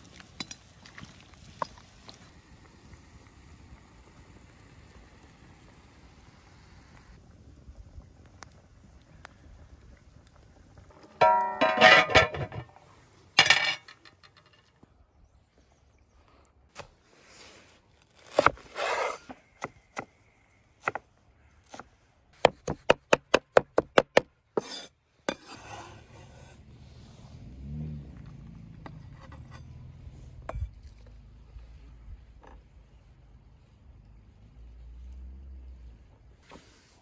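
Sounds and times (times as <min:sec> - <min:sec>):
ringing metallic clatter: 0:11.2 - 0:12.7.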